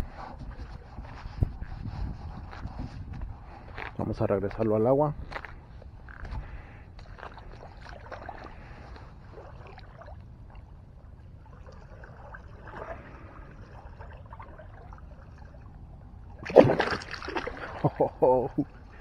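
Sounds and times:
low steady rumble: 0:00.0 - 0:19.0
water sloshing and trickling: 0:06.1 - 0:19.0.

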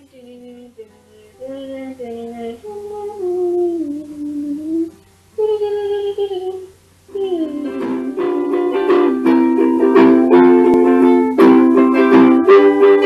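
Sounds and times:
woman humming: 0:00.0 - 0:11.2.

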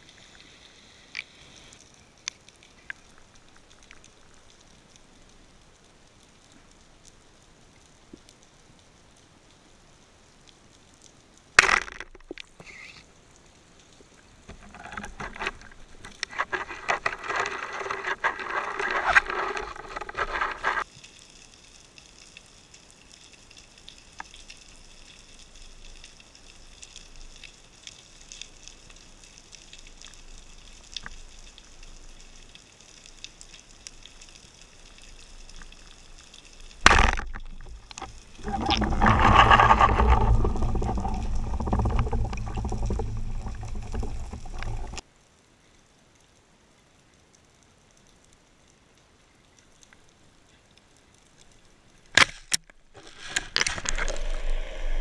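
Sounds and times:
speargun firing underwater: 0:36.8 - 0:37.7.

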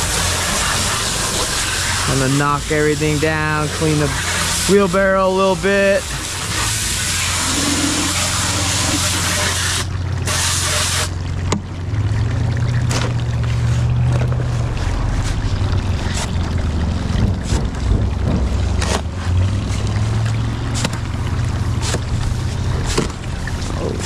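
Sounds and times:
hose spraying water: 0:00.0 - 0:24.0
hoe scraping wet mortar: 0:05.7 - 0:11.1, 0:12.9 - 0:16.4, 0:20.7 - 0:24.0.

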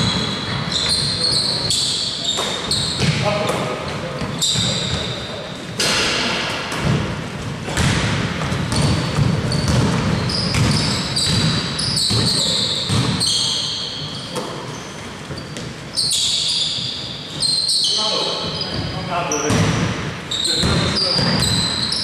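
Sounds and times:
sneakers squeaking: 0:00.0 - 0:22.0
players' voices: 0:01.0 - 0:07.0
basketball bouncing: 0:02.4 - 0:03.6, 0:05.8 - 0:13.2, 0:19.5 - 0:20.0, 0:20.6 - 0:21.9.

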